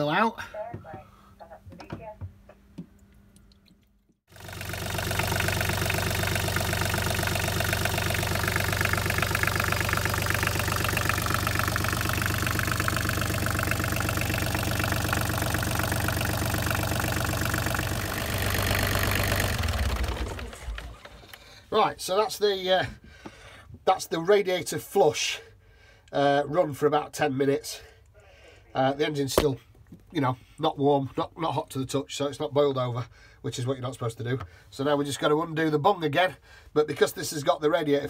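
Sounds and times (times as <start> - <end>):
diesel engine idling: 4.3 - 21.4.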